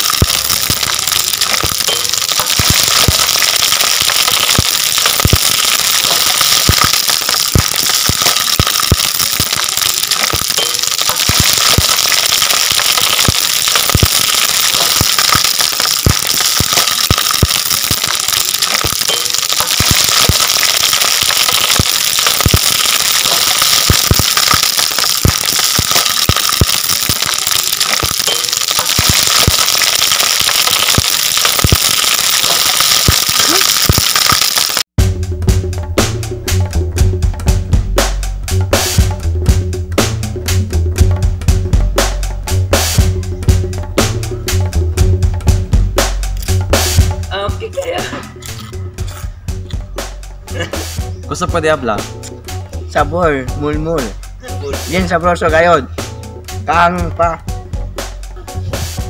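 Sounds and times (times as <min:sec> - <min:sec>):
deep-frying sizzle with pops: 0:00.0 - 0:34.9.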